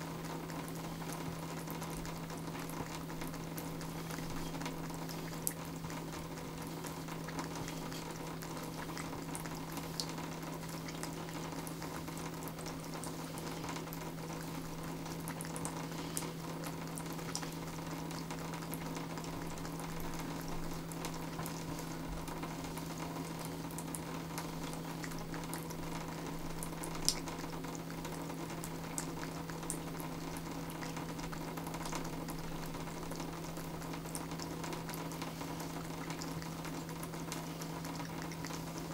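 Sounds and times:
water running into bathtub: 0:00.0 - 0:38.9.

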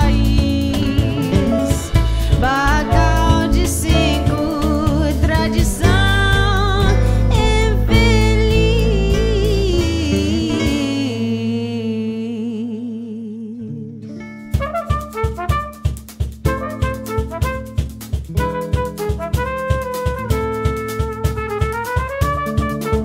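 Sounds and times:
drums striking: 0:00.0 - 0:10.8, 0:14.6 - 0:23.0
jazz band playing: 0:00.0 - 0:11.0, 0:14.5 - 0:23.0
woman singing with vibrato: 0:00.0 - 0:14.2.

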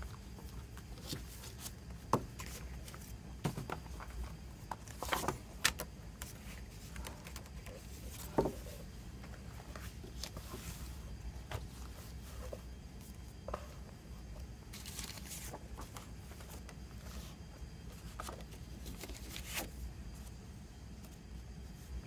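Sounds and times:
paper and cardboard rustling: 0:00.1 - 0:12.7, 0:14.7 - 0:20.4.

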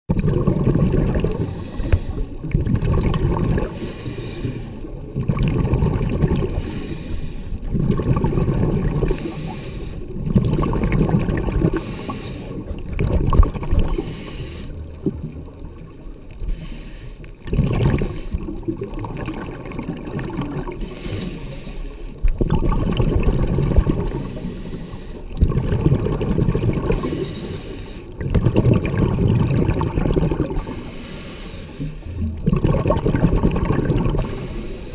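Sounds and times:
exhaled bubbles gurgling underwater: 0:00.1 - 0:34.9
regulator inhale hiss: 0:01.3 - 0:02.4, 0:03.6 - 0:04.9, 0:06.5 - 0:07.6, 0:09.1 - 0:10.2, 0:11.7 - 0:12.8, 0:13.9 - 0:15.0, 0:16.4 - 0:17.4, 0:18.0 - 0:18.6, 0:20.8 - 0:22.2, 0:24.0 - 0:25.4, 0:26.9 - 0:28.2, 0:30.5 - 0:32.3, 0:34.2 - 0:34.9.

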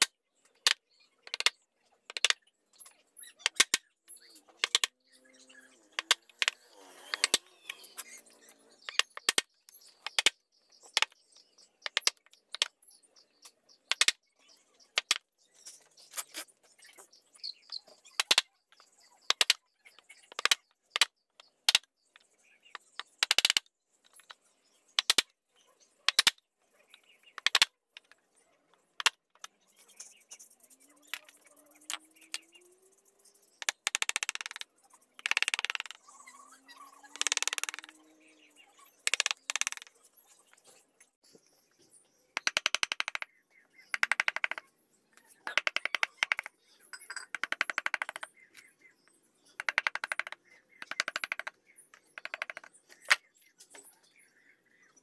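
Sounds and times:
chisel tapping and cracking wood: 0:00.0 - 0:02.4, 0:03.4 - 0:03.8, 0:06.0 - 0:07.4, 0:08.9 - 0:11.2, 0:11.8 - 0:12.7, 0:13.9 - 0:14.2, 0:18.2 - 0:19.6, 0:23.0 - 0:24.3, 0:26.1 - 0:26.4, 0:27.4 - 0:28.2, 0:42.4 - 0:43.3.

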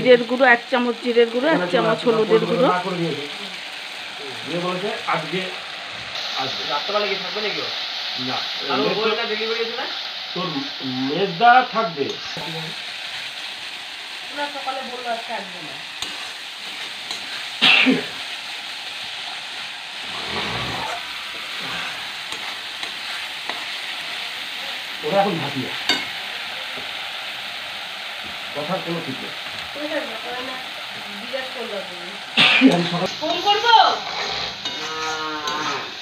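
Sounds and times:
spice paste sizzling in oil: 0:00.0 - 0:36.0
metal spoon scraping pan: 0:16.0 - 0:17.6, 0:22.2 - 0:23.9, 0:33.4 - 0:36.0.

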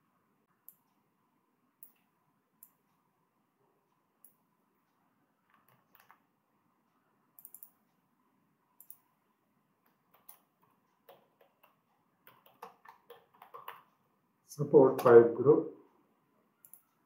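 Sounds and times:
keyboard typing: 0:05.5 - 0:06.2, 0:07.4 - 0:07.8, 0:09.8 - 0:14.0, 0:16.6 - 0:17.0
mouse clicks: 0:07.4 - 0:07.8, 0:08.8 - 0:09.0, 0:09.8 - 0:13.9, 0:16.6 - 0:17.0.

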